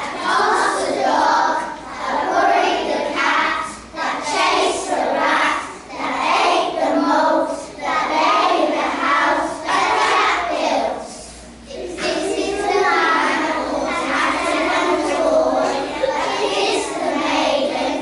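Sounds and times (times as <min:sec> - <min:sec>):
children singing in unison: 0:00.0 - 0:18.0.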